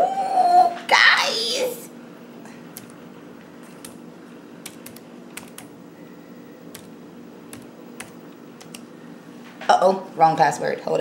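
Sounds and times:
faint steady hum: 0.0s - 11.0s
laptop keyboard keys clicking: 3.6s - 4.0s, 4.6s - 5.7s, 6.7s - 6.9s, 7.5s - 8.8s.

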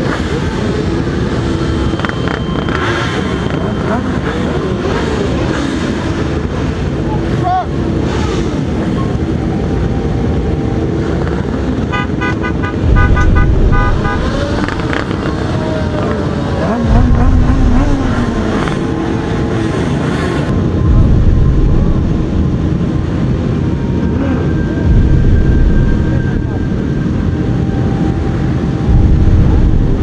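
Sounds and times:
motorcycles revving: 0.0s - 30.0s
horn beeping: 1.4s - 5.0s, 11.0s - 15.9s.

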